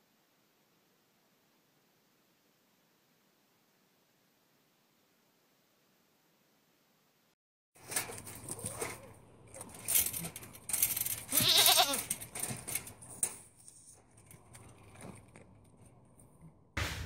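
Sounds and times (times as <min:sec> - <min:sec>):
rustling and knocking: 0:07.8 - 0:15.9
goat bleating: 0:11.3 - 0:12.1.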